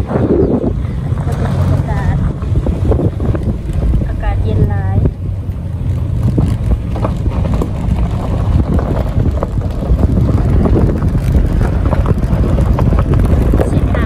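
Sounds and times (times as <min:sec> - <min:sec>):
vehicle rumble: 0:00.0 - 0:14.0
knocks and rattles: 0:05.8 - 0:14.0.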